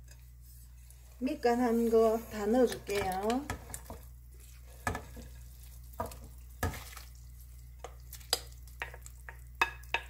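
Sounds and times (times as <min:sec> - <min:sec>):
leaves plopping into boiling broth: 0:06.0 - 0:10.0.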